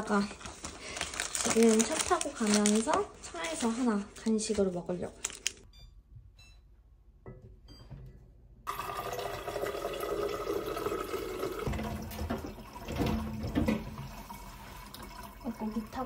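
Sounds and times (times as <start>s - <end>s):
water running into tumbler: 8.7s - 16.0s.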